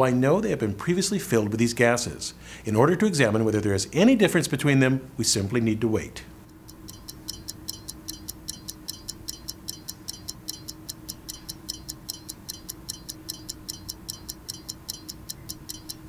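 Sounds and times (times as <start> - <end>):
low steady tone: 6.5 - 16.0
stopwatch ticking: 6.5 - 16.0.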